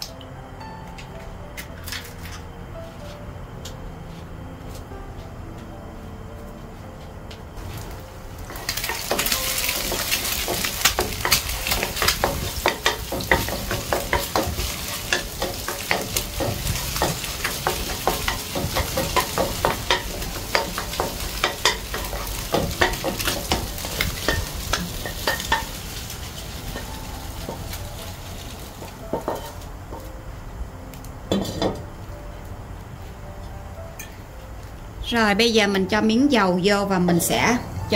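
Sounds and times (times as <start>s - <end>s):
eggs sizzling in a pan: 7.6s - 30.1s.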